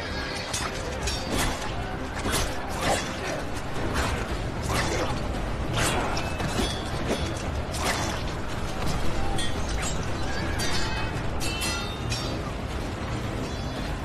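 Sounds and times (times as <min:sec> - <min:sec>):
weapons clashing: 0:00.0 - 0:12.5
low rumble of fighting: 0:00.0 - 0:14.0.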